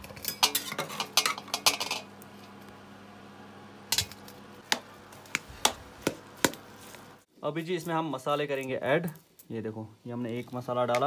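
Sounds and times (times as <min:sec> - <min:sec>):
metal utensil clinking on pot: 0:00.0 - 0:02.1.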